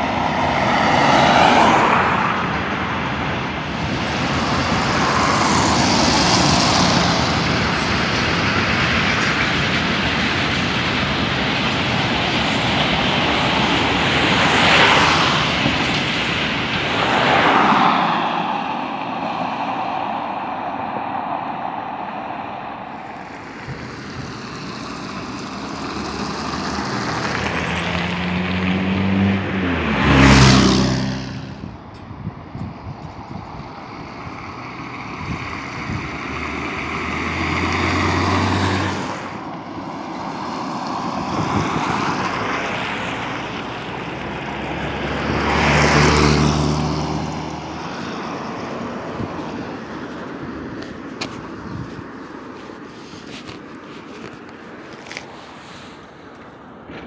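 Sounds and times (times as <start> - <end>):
cars passing: 0.0 - 57.0.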